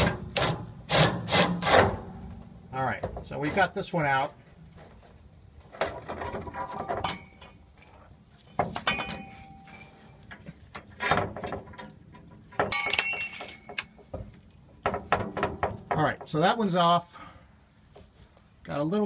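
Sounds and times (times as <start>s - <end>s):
metal clinking and rattling: 5.7s - 16.0s.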